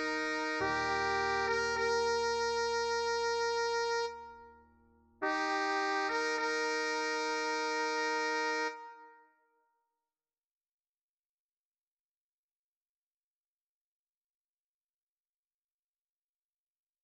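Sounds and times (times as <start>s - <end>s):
synthesized brass-like chords: 0.0s - 9.3s.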